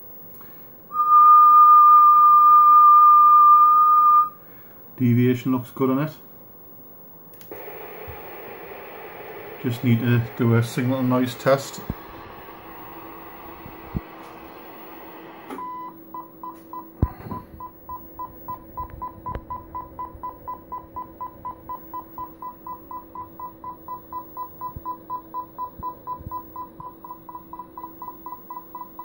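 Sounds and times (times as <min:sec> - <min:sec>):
radio speaker test tone beeping: 0:07.5 - 0:29.0
steady low tone: 0:07.5 - 0:29.0.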